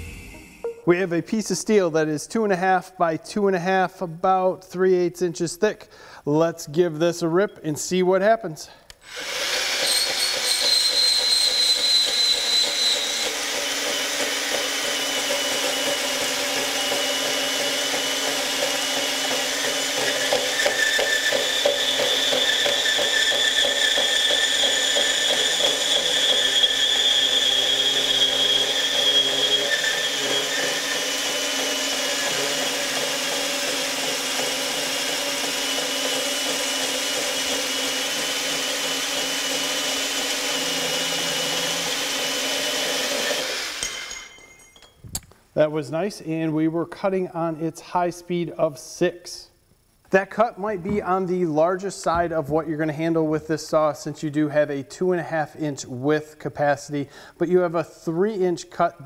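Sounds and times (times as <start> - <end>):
saw blade grinding through metal: 9.0 - 44.4
band saw motor whine: 9.1 - 19.1, 19.8 - 44.0.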